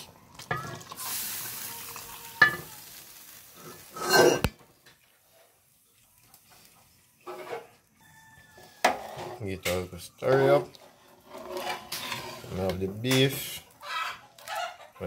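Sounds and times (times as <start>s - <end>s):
hot soup hissing: 0.6s - 4.5s.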